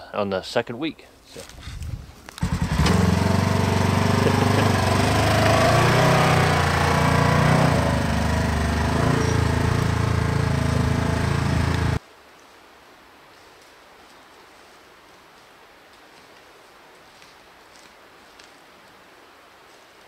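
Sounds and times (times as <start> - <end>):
vehicle engine driving off: 2.4 - 12.0.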